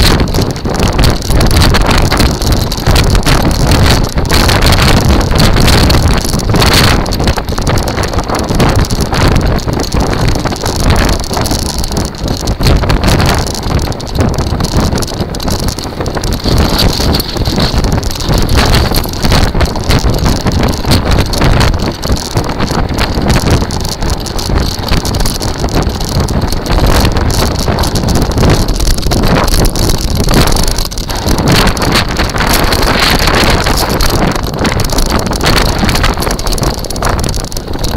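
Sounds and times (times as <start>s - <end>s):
buggy wheels rumbling and rattling: 0.0s - 37.9s
wind buffeting microphone: 0.0s - 37.9s.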